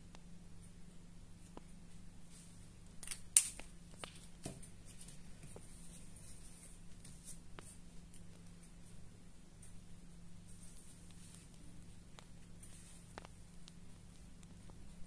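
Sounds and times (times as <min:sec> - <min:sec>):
soft handling of fabric: 0:01.3 - 0:02.9, 0:04.0 - 0:15.0
light ticks and taps: 0:10.6 - 0:14.9.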